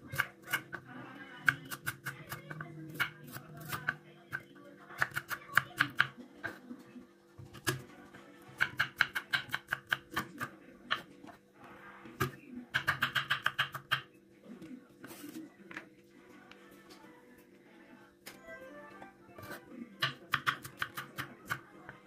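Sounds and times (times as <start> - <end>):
knife chopping on wooden board: 8.6 - 10.3.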